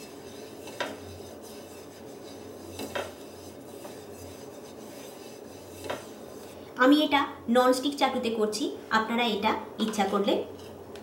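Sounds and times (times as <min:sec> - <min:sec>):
oil rubbed over pan: 0:00.0 - 0:06.7.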